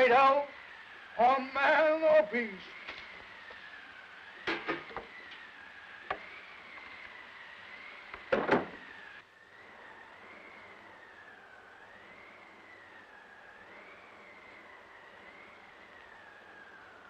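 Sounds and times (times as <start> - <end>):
whistling snowstorm wind: 0.0 - 17.0
sharp wooden knocks: 8.3 - 8.8.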